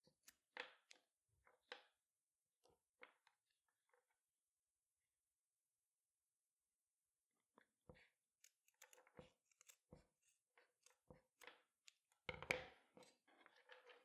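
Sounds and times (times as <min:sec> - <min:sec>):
scissors snipping webbing: 0:08.4 - 0:11.0.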